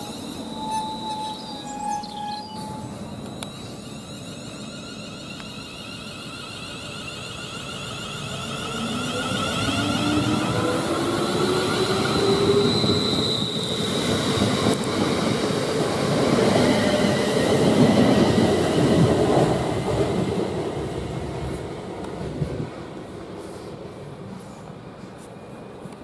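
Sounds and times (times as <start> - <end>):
brief high tone: 0.0 - 7.7
train traction motors whining: 0.0 - 15.0.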